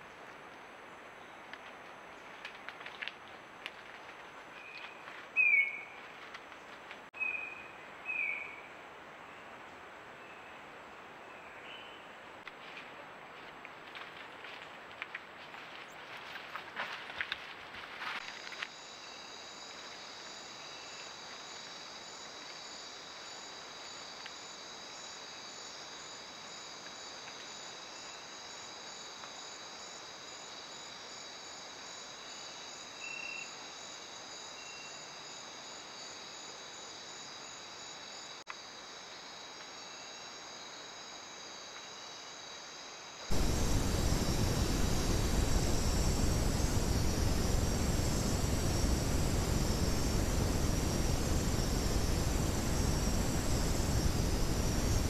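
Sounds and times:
crickets trilling: 18.0s - 55.0s
short high insect call: 18.2s - 55.0s
loud even hiss: 43.3s - 55.0s.

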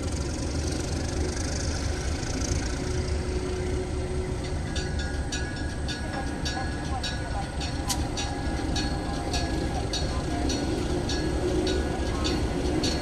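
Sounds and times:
diesel locomotive rumbling: 0.0s - 13.0s
bell ringing: 4.1s - 13.0s.

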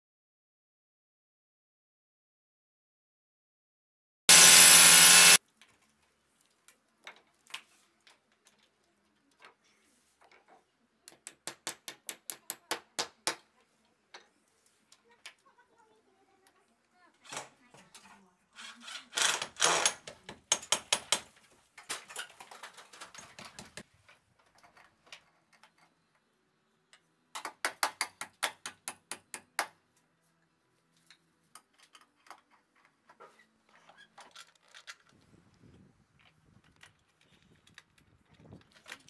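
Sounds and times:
impact driver rattling: 4.3s - 5.4s.

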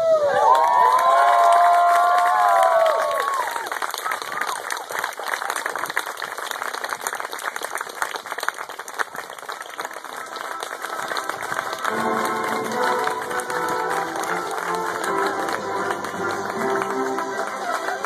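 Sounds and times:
audience applauding: 0.2s - 18.0s
music playing: 9.9s - 18.0s.

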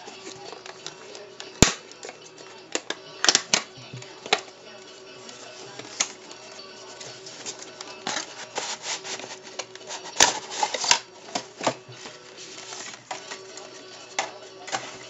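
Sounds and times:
packaging rubbing and scraping: 6.9s - 13.8s.

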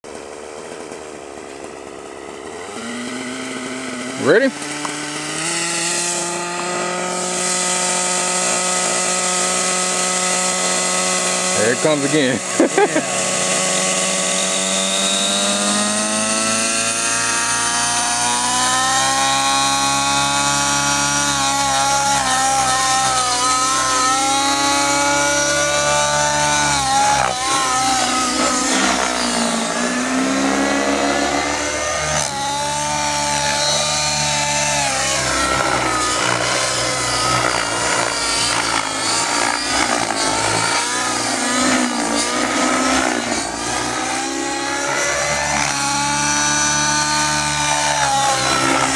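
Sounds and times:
rc helicopter engine revving: 0.0s - 48.9s.

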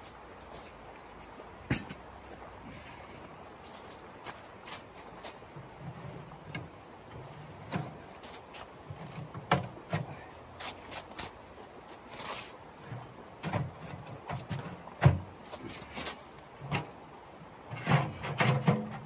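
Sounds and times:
footsteps on icy snow: 0.0s - 5.5s, 8.1s - 8.8s, 10.5s - 13.1s, 15.4s - 16.5s
creek rushing: 0.0s - 18.4s.

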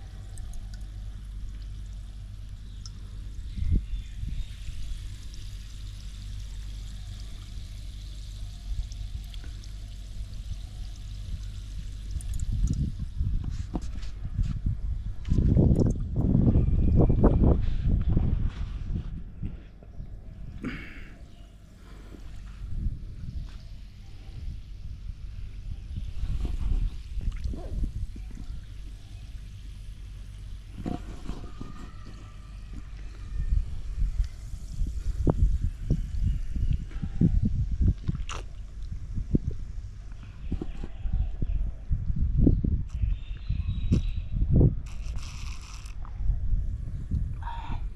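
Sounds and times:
wind rumble on microphone: 2.2s - 5.6s, 8.4s - 20.8s, 22.2s - 29.7s, 30.5s - 47.9s
soda fizzing in a cup: 44.8s - 46.0s.

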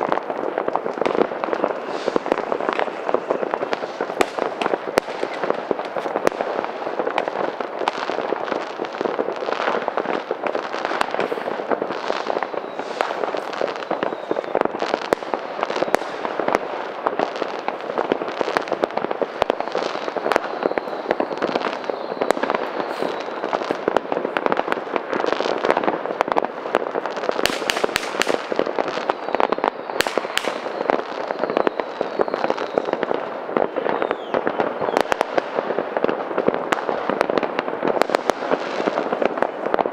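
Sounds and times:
firework whistles: 0.0s - 26.0s, 26.6s - 36.2s
fireworks crackling and banging: 0.0s - 39.9s.

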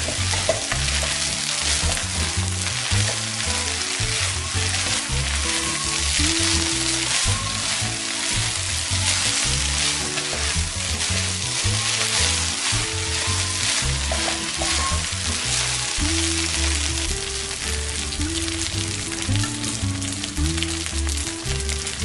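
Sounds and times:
spatula scraping a pan: 0.0s - 17.1s
rice sizzling in a wok: 0.0s - 22.0s.

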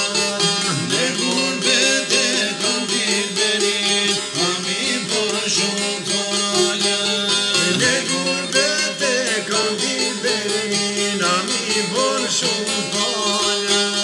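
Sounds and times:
man singing: 0.0s - 14.0s
plucked long-necked lutes: 0.0s - 14.0s.

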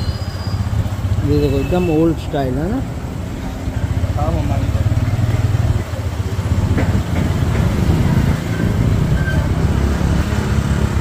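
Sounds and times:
motorcycle engine running: 2.9s - 11.0s.

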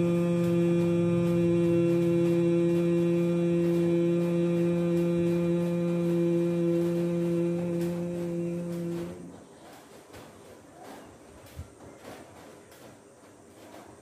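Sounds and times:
man humming low: 0.0s - 9.4s.

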